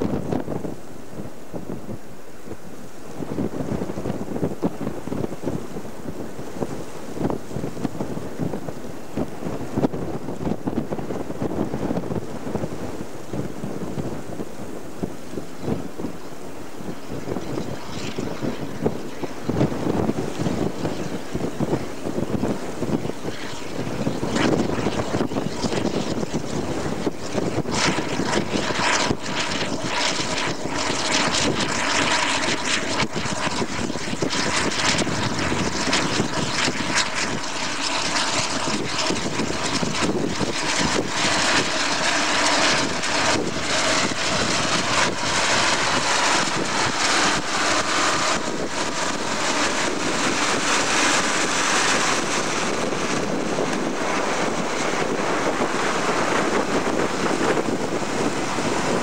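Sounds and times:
wind buffeting microphone: 0:00.0 - 0:59.0
tractor diesel engine running: 0:37.4 - 0:59.0.

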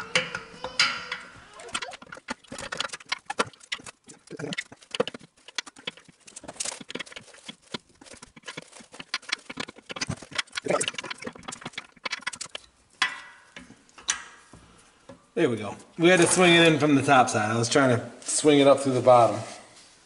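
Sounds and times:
metal engine parts clinking: 0:00.0 - 0:15.3.

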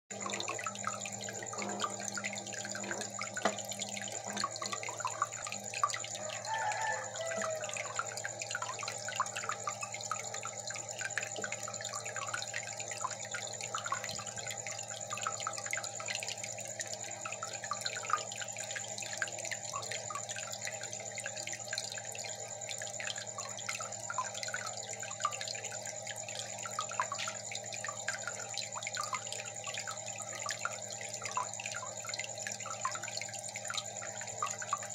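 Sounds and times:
constant low hum: 0:00.1 - 0:06.4
aquarium water bubbling: 0:00.1 - 0:34.9.

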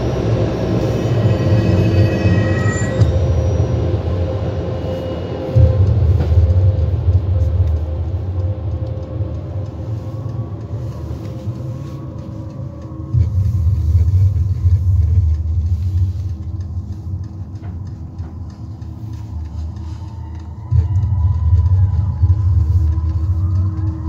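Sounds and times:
car rumble from inside cabin: 0:05.5 - 0:24.0.

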